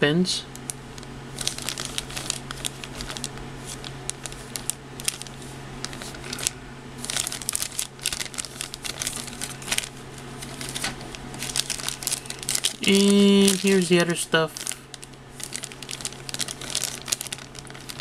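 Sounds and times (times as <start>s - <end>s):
plastic bag crinkling: 0.6s - 18.0s.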